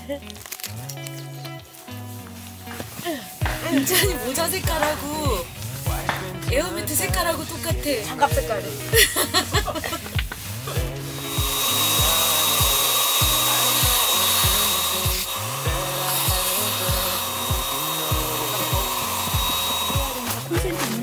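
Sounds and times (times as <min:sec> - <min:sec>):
music with steady beat: 0:00.0 - 0:21.0
electric air pump running: 0:08.8 - 0:21.0.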